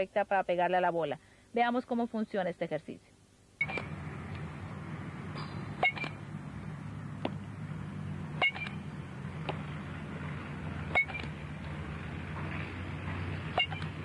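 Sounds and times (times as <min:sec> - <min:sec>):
steady low background hum: 0:00.0 - 0:14.0
bat hitting balls: 0:05.3 - 0:06.2, 0:09.4 - 0:11.4, 0:12.3 - 0:14.0.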